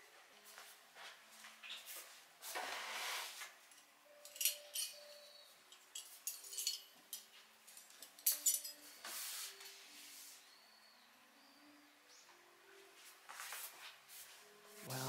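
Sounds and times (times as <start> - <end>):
metal cutlery clinking: 3.7 - 8.9
placemat swishing: 9.0 - 10.4
hands brushing over placemat: 9.0 - 10.5, 13.3 - 14.9.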